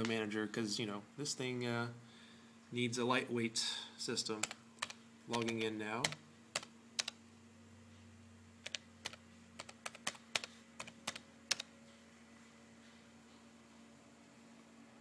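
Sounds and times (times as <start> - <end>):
faint steady hum: 0.0 - 15.0
laptop keyboard keystrokes: 4.4 - 7.2, 8.6 - 11.7.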